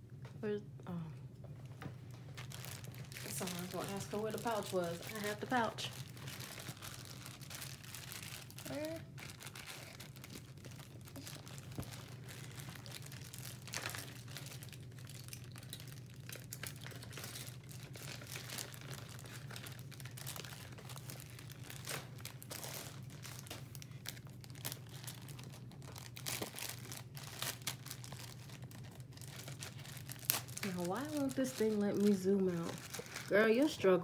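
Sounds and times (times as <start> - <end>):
steady low hum: 0.0 - 34.0
plastic bag crinkling: 2.1 - 34.0.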